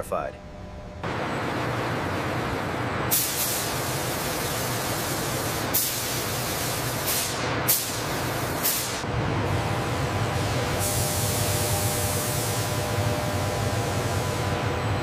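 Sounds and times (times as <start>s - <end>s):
paint spray guns hissing: 3.1s - 9.0s.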